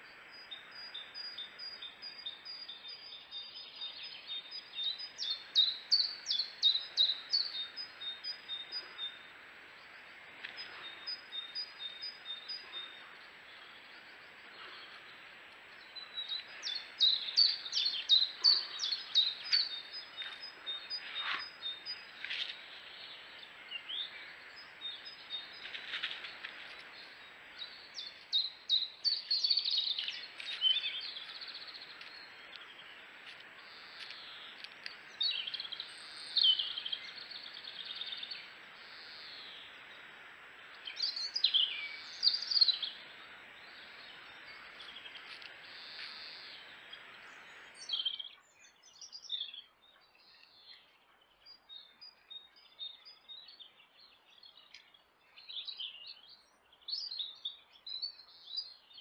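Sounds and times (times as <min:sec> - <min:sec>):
songbirds chirping: 0:00.0 - 0:59.0
steady hiss: 0:03.1 - 0:48.0.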